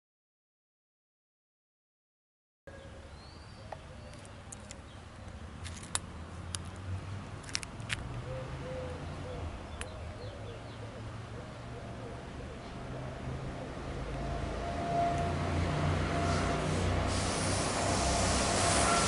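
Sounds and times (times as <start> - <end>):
low bird calls: 8.2 - 14.6.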